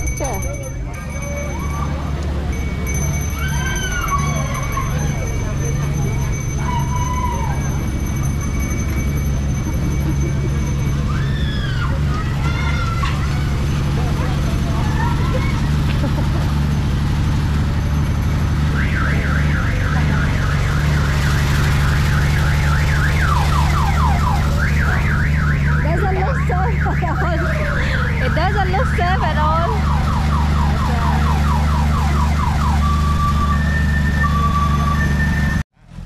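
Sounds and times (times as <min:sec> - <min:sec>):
two-pitch beeps: 0:00.0 - 0:03.4
low engine-like drone: 0:00.0 - 0:36.0
electronic siren: 0:18.0 - 0:29.0, 0:29.6 - 0:35.6.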